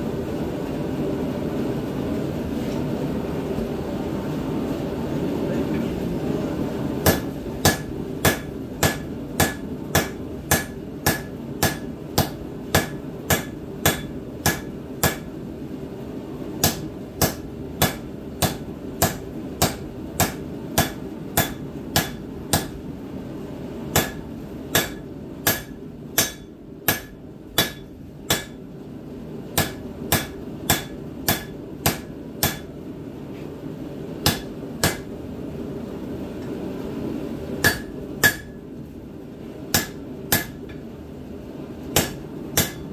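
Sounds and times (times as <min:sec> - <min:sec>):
hammer striking steel on anvil: 0:07.0 - 0:15.3, 0:16.6 - 0:22.8, 0:23.9 - 0:28.6, 0:29.6 - 0:32.7, 0:34.2 - 0:35.1, 0:37.6 - 0:38.6, 0:39.7 - 0:40.8, 0:42.0 - 0:42.9.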